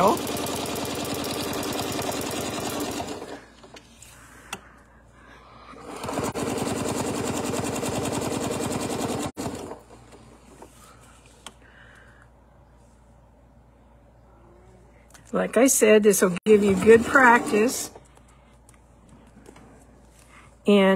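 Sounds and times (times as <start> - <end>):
sewing machine stitching: 0.0 - 3.7, 5.8 - 10.0, 16.6 - 18.0.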